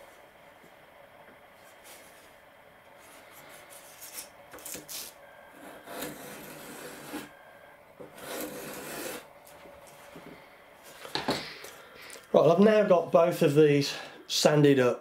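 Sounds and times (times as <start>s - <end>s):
plane shaving wood: 5.5s - 7.4s, 8.0s - 9.6s.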